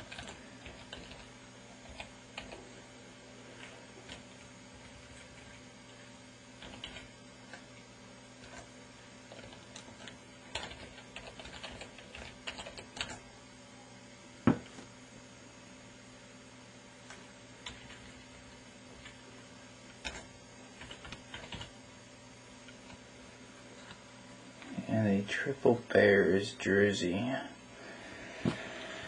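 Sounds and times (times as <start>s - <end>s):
keyboard keys clicking: 6.6s - 7.0s, 10.5s - 13.2s, 20.8s - 21.7s.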